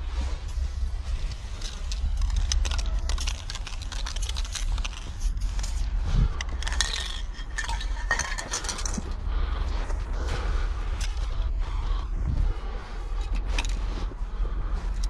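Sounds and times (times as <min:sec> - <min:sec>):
wind rumble on microphone: 0:00.0 - 0:15.0
spray cans clinking and rattling: 0:01.6 - 0:05.8, 0:06.4 - 0:09.1.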